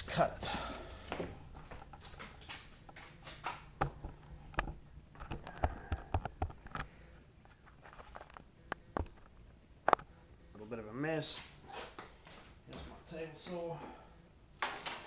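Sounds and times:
footsteps: 1.0s - 3.7s.

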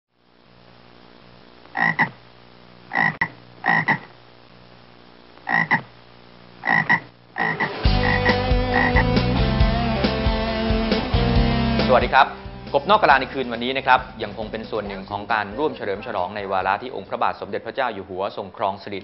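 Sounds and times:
faint low hum: 0.2s - 7.6s
frog croaking: 1.6s - 2.2s, 2.9s - 4.2s, 5.4s - 6.0s, 6.6s - 9.2s
guitar theme music: 7.6s - 16.1s.

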